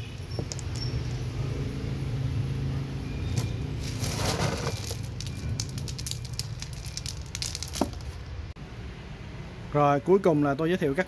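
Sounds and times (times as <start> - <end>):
clay pebbles clattering: 0.2 - 1.1, 3.8 - 8.2.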